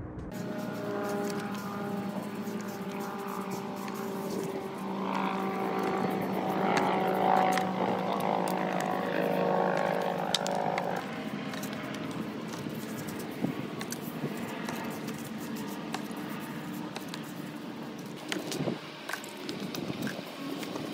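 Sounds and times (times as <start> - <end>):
motorcycle engine running: 0.0 - 14.9.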